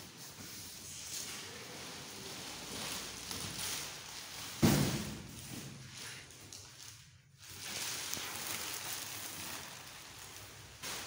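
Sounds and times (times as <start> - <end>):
rustling cardboard and plastic wrap: 0.0 - 11.0
cardboard carton thump: 4.6 - 5.2.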